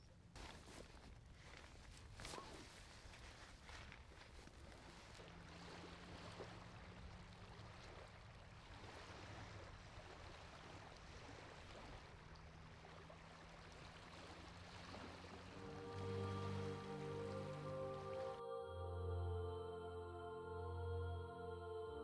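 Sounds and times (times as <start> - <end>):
low steady hum: 9.4 - 22.0.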